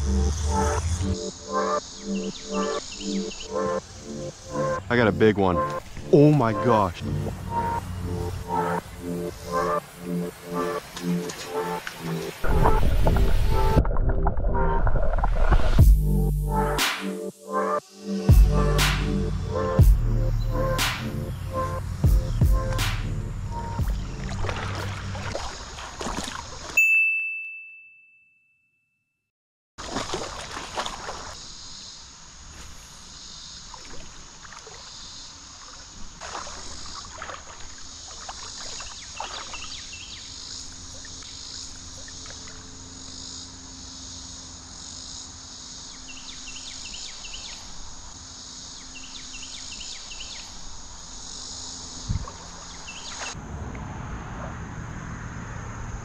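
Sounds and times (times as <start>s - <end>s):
creek hiss: 0.0s - 13.8s, 29.8s - 53.4s
faint chirps: 1.0s - 6.3s
bright ding: 26.8s - 28.9s.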